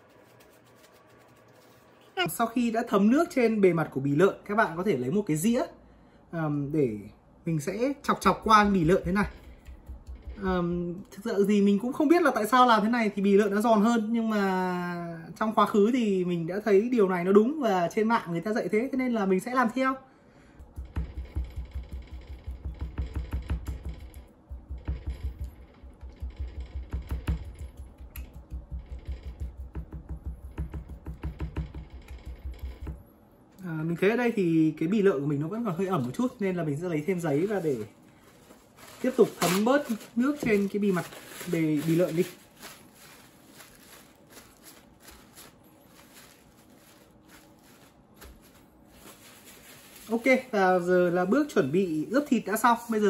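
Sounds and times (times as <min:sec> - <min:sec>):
paper towel rustling and patting: 0:08.2 - 0:10.8, 0:35.8 - 0:51.5.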